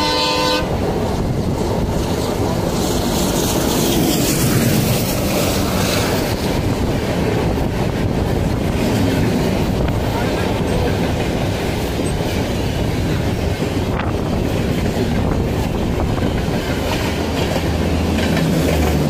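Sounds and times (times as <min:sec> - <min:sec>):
train horn: 0:00.0 - 0:00.8
train passing on next track: 0:00.0 - 0:19.0
train running at speed: 0:00.0 - 0:19.0
wind rush: 0:00.0 - 0:19.0.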